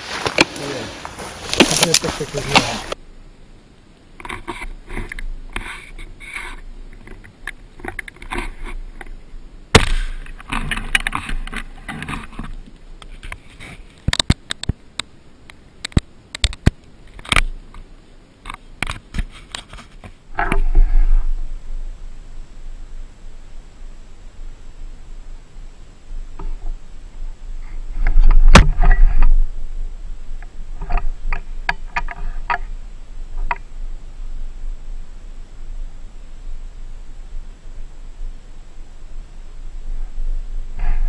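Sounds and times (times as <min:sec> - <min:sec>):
footsteps in rustling brush: 0:00.0 - 0:03.0
twigs snapping: 0:00.0 - 0:03.0.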